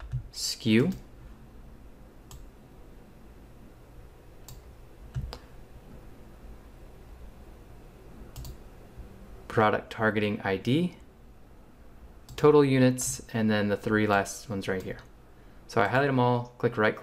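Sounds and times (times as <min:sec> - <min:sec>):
faint room hiss: 0:00.0 - 0:17.0
computer mouse clicks: 0:02.3 - 0:02.5, 0:04.4 - 0:05.5, 0:08.3 - 0:08.6.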